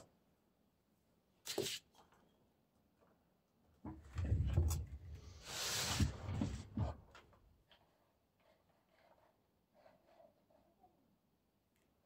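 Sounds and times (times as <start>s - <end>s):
sliding scrape: 5.2s - 6.7s.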